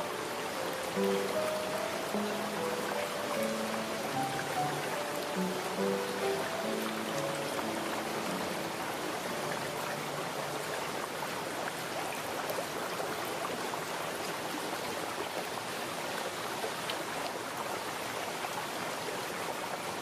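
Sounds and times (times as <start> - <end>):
trickling burbling water: 0.0 - 20.0.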